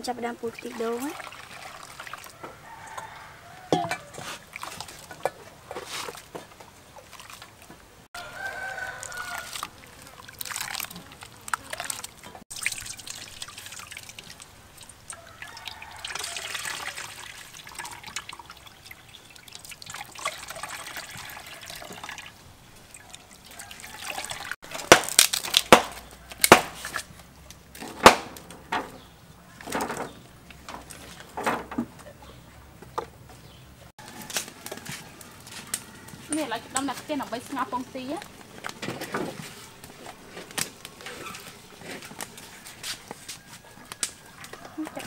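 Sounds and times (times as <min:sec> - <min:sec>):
liquid trickling through a metal sieve: 0:00.0 - 0:07.7, 0:08.4 - 0:24.9
firewood cracking and knocking: 0:24.6 - 0:32.1, 0:34.0 - 0:44.6.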